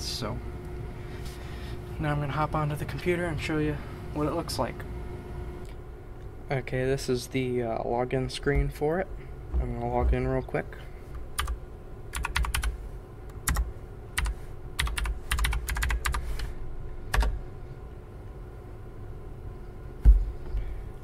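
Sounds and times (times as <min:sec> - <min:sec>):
computer keyboard typing: 0:11.4 - 0:12.7, 0:13.4 - 0:16.2, 0:17.1 - 0:17.3.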